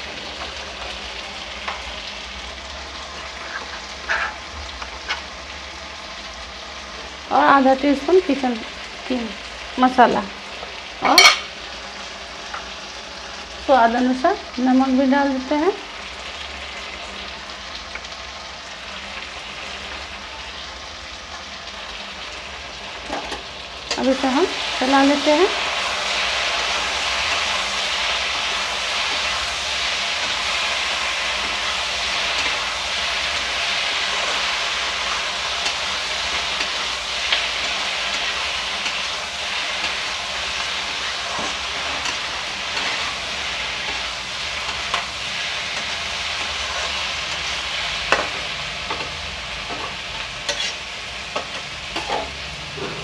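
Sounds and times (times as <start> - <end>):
frying hiss: 0.0 - 53.0
spatula scraping metal pan: 3.4 - 4.4, 50.5 - 50.8.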